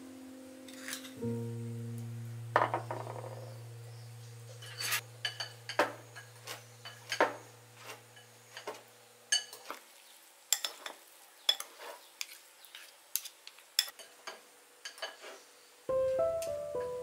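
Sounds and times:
utensils clinking against ceramic bowl: 4.6 - 7.4, 8.2 - 9.7, 10.5 - 15.2.

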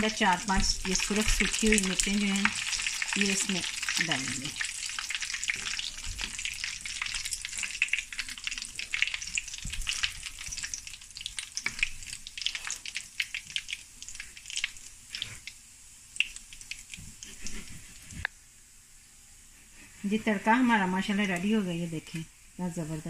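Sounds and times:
spices sizzling in hot oil: 0.0 - 18.3.

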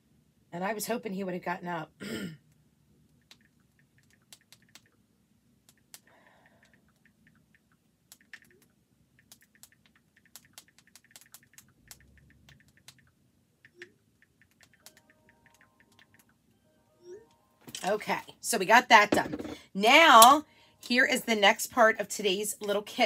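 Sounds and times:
low room hum: 0.0 - 23.0
keyboard typing: 3.2 - 5.0, 5.6 - 16.4.

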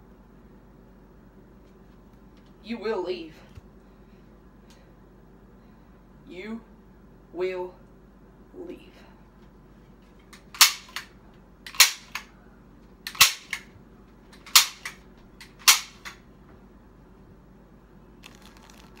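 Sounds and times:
staple gun snapping: 10.4 - 11.1, 11.7 - 12.3, 13.1 - 13.7, 14.4 - 16.2.

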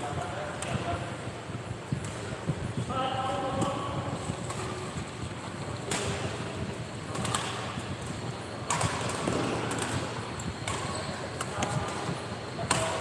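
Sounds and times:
hall background noise: 0.0 - 13.0
rackets hitting shuttlecock: 4.4 - 4.8, 5.8 - 6.5, 7.1 - 13.0.

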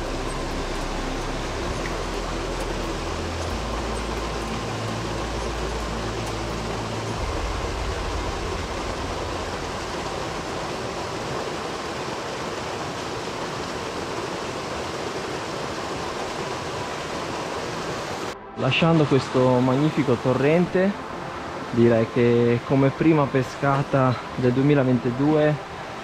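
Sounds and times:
low microphone rumble: 0.0 - 12.4
torrent of water rushing: 0.0 - 26.0.

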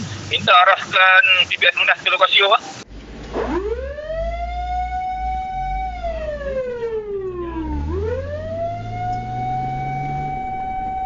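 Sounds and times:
low engine drone: 2.8 - 11.0
fire engine siren wailing: 3.1 - 11.0.

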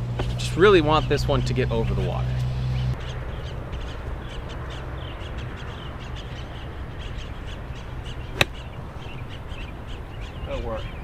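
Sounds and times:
birds calling: 0.2 - 11.0
golf club striking ball: 8.4 - 8.8.

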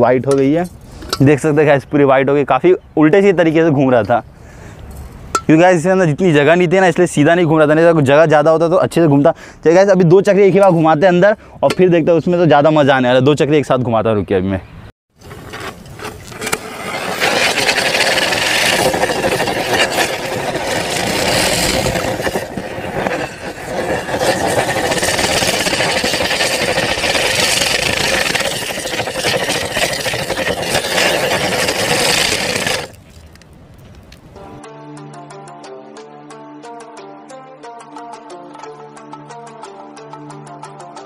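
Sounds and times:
fireworks crackling hiss: 16.2 - 34.3.

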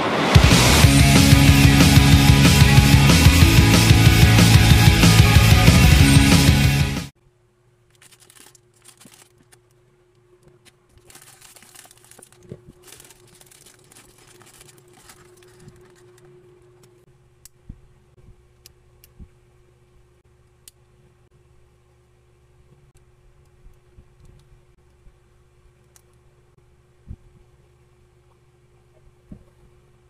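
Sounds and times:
rock music: 0.0 - 7.1
plastic bag crinkling: 7.9 - 9.6, 10.9 - 16.4
plastic parts clicking: 7.9 - 9.8, 10.4 - 17.0.

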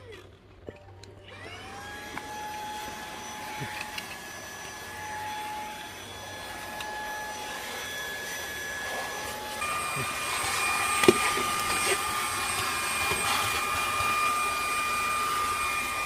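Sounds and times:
vacuum motor whine: 1.0 - 16.0.

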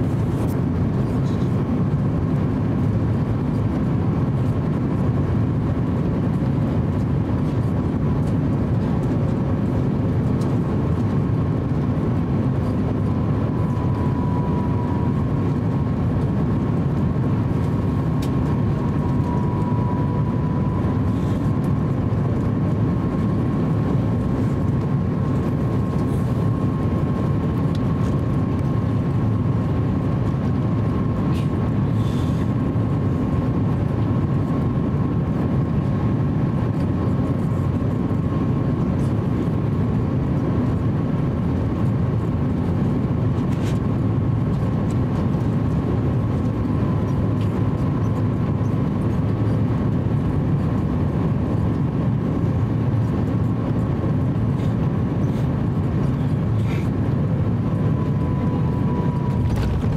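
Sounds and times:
airplane cabin rumble: 0.0 - 59.9
faint high whine: 12.6 - 15.9, 18.6 - 21.9, 57.6 - 59.9.

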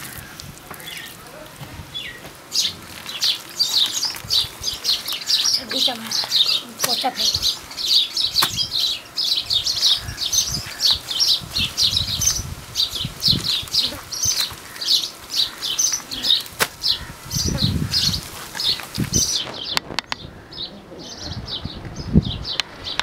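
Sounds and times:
small birds chirping: 0.0 - 23.0
hands squelching wet mud: 2.2 - 8.7.

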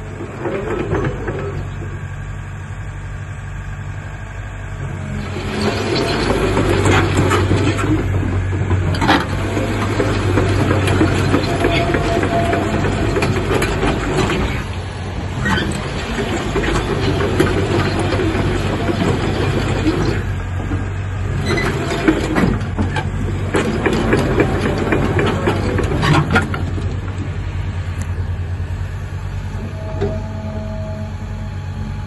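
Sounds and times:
diesel engine running under load: 0.0 - 32.0
track links clanking on gravel: 5.0 - 28.2.

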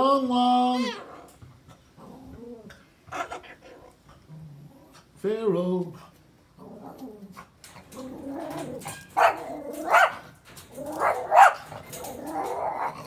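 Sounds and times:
dog growling: 1.0 - 5.1, 6.5 - 13.0
dog barking: 9.2 - 10.3, 11.0 - 11.7.

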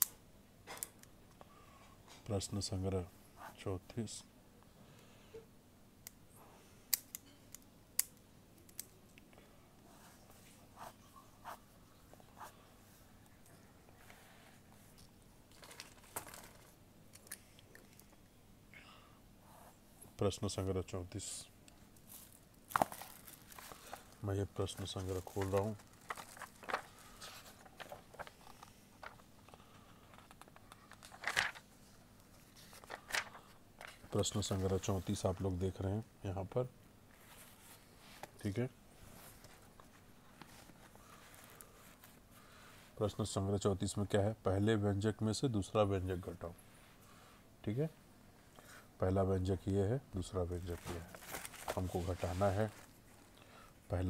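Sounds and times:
marker pen strokes on paper: 9.9 - 11.8
paper pages rustling: 14.8 - 16.8, 22.0 - 35.4, 39.0 - 42.2, 50.5 - 53.3.

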